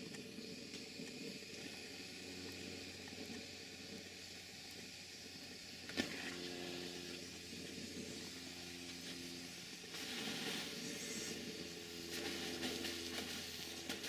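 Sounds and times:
faint steady hum: 0.0s - 14.0s
steam hissing: 6.7s - 14.0s.

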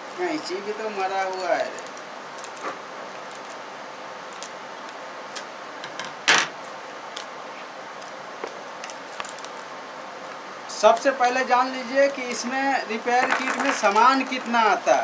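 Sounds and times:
plastic packet crinkling: 12.0s - 15.0s.

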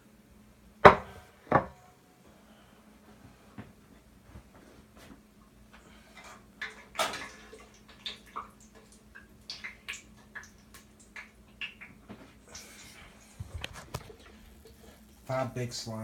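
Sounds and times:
faint steady hum: 0.0s - 16.0s
dishes clattering: 0.8s - 1.8s.

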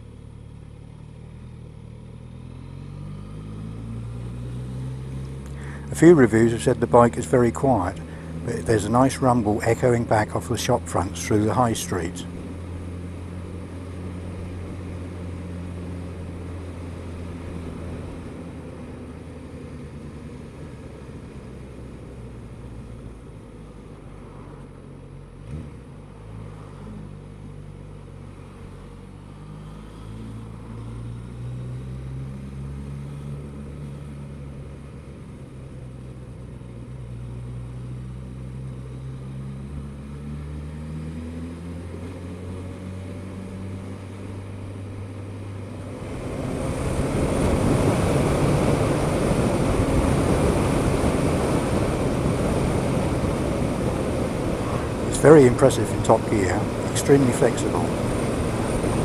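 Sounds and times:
motorcycle engine rumbling: 4.9s - 19.2s, 43.1s - 59.0s.

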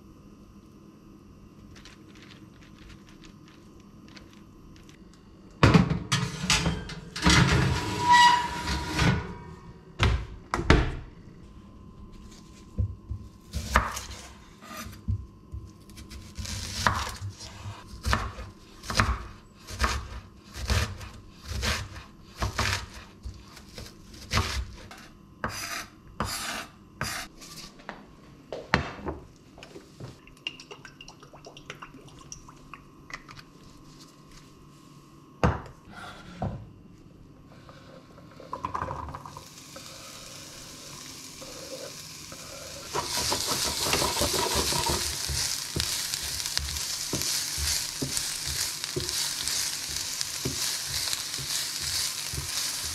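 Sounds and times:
faint sizzle: 37.5s - 52.9s.

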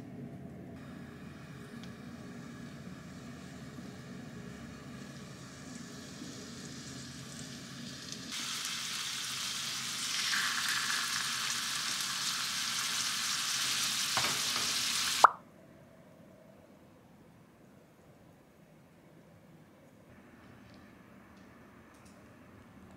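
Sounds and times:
peppers sizzling in a frying pan: 2.4s - 15.3s.

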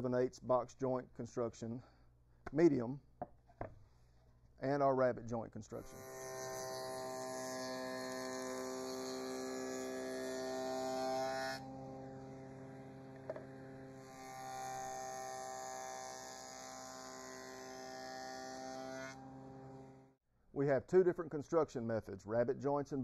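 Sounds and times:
table saw cutting wood: 5.8s - 20.1s.

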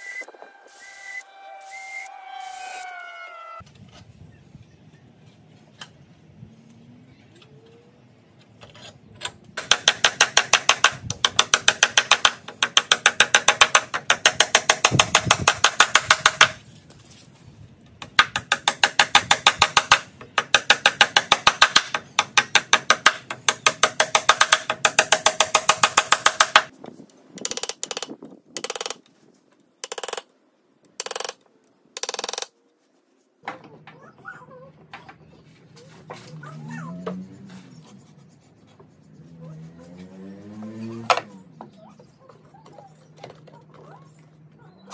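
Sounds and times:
hammer tapping nail punch: 29.8s - 30.2s, 31.0s - 31.4s.

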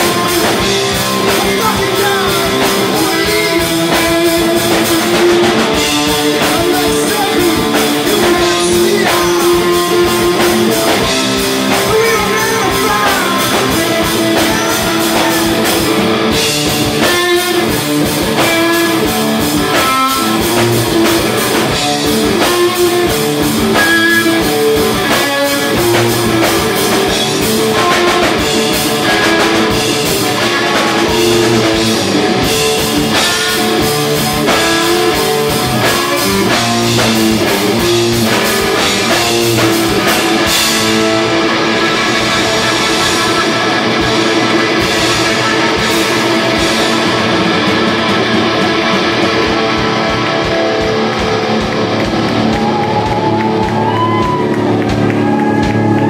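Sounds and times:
drum kit: 0.0s - 56.0s
electric guitar riffing: 0.0s - 56.0s.

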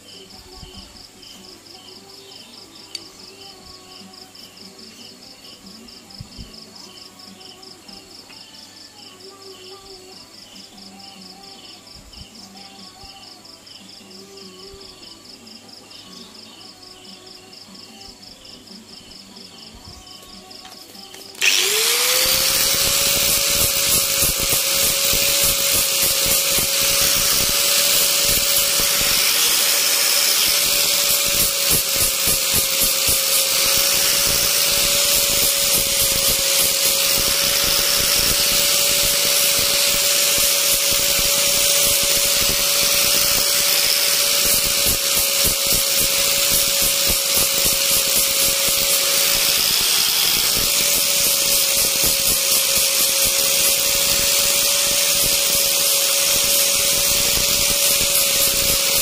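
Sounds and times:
crickets chirping: 0.0s - 21.4s
rotary power tool whining: 20.7s - 59.0s.

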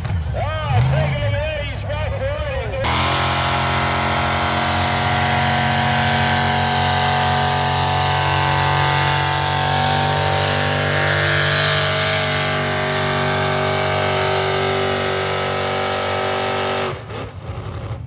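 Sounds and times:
tractor engine at full throttle: 0.0s - 18.0s.

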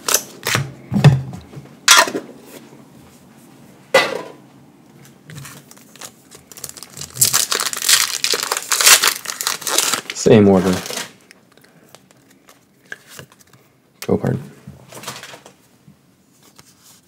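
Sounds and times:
foil wrappers crinkling: 5.4s - 13.5s.

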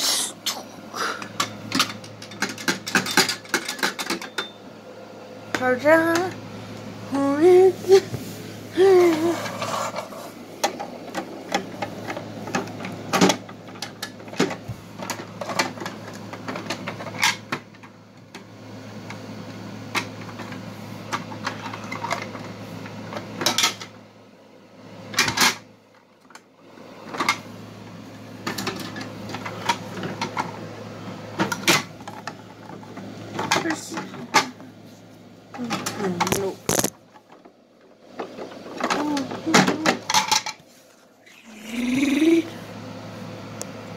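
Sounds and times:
steady low hum: 0.0s - 25.9s, 26.6s - 43.9s.

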